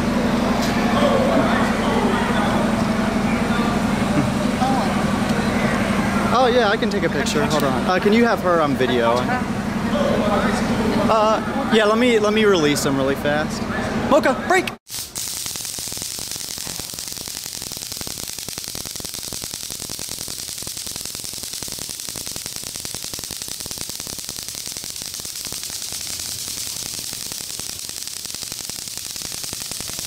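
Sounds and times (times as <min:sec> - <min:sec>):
high-pitched crackling hiss: 0:14.9 - 0:30.0.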